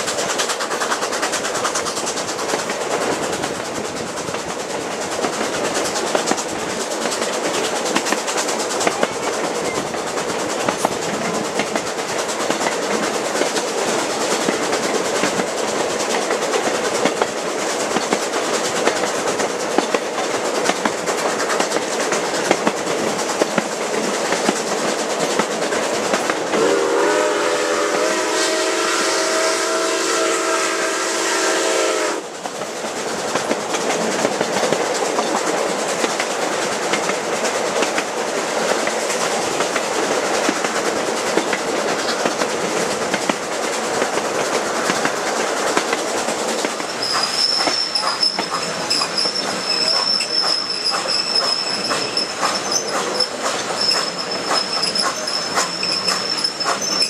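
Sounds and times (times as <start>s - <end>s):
train car rumble and clickety-clack: 0.0s - 57.0s
steam whistle blast: 26.6s - 32.3s.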